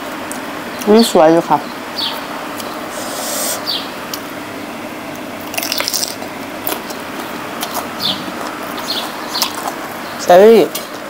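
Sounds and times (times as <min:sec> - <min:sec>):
fan hiss: 0:00.0 - 0:11.0
wet chewing and mouth smacks: 0:05.4 - 0:09.8.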